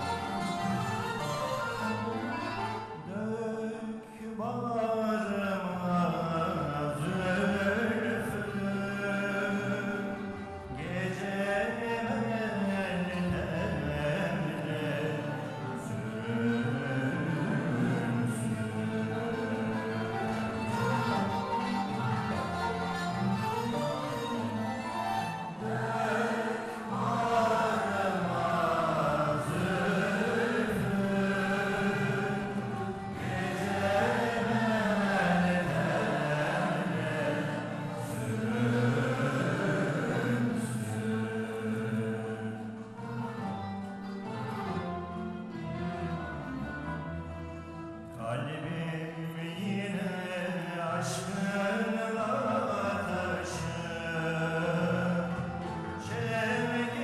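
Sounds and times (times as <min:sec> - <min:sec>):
choir singing: 0:00.0 - 0:03.1, 0:06.1 - 0:47.4
plucked and bowed instruments: 0:00.0 - 0:57.0.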